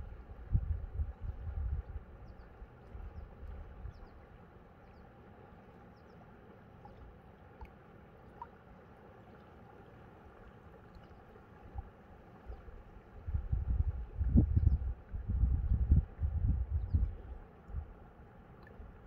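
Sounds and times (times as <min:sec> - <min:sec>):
wind rumble on microphone: 0:00.0 - 0:04.2, 0:12.5 - 0:18.0
river water flowing around rocks: 0:00.0 - 0:14.3, 0:17.2 - 0:19.0.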